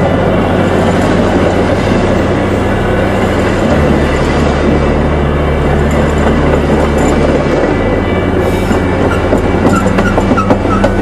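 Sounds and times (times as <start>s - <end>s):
train engine hum: 0.0s - 11.0s
wheels clattering over rails: 0.0s - 11.0s
high wheel squeals: 5.6s - 11.0s.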